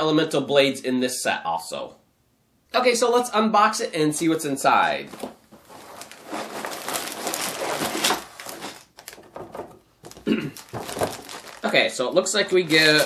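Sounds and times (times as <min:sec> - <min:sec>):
plastic bags rustling: 0:05.0 - 0:13.0
cardboard box flap scraping: 0:05.2 - 0:09.8.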